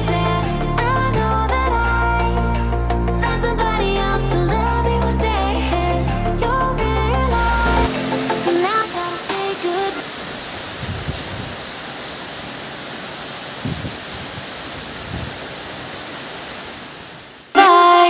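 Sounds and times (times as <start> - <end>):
music: 0.0 - 10.0, 17.6 - 18.0
heavy rain pouring: 7.2 - 17.6.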